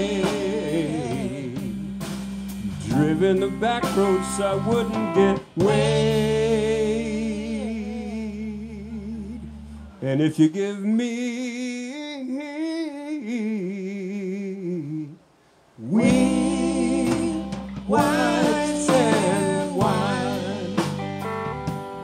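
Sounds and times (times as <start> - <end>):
blues-rock band playing: 0.0 - 7.8, 16.0 - 22.0.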